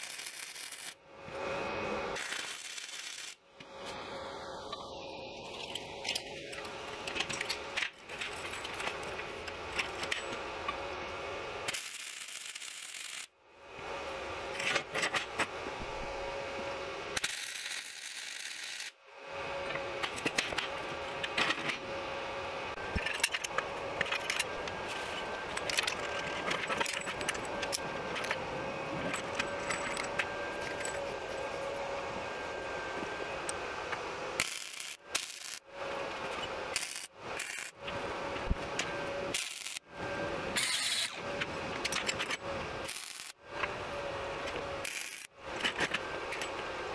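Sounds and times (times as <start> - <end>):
welder crackling and spitting: 34.4 - 35.6, 36.8 - 37.7, 39.4 - 39.8, 42.8 - 43.4, 44.8 - 45.3.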